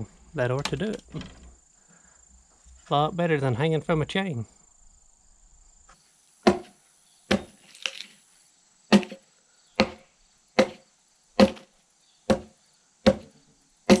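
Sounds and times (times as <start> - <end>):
insects shrilling: 4.4 - 14.0
axe chopping into log: 6.5 - 6.7, 7.3 - 7.6, 8.9 - 9.2, 9.8 - 10.0, 10.6 - 10.8, 11.4 - 11.7, 12.3 - 12.5, 13.1 - 13.3.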